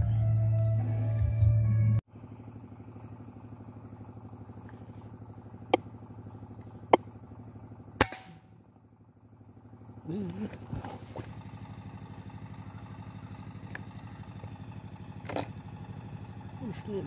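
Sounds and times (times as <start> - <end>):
low pulsing hum: 0.0 - 17.0
air rifle firing crack: 8.0 - 8.5.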